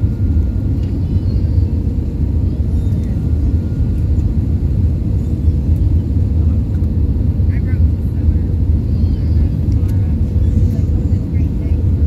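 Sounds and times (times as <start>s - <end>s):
airplane cabin engine rumble: 0.0s - 12.0s.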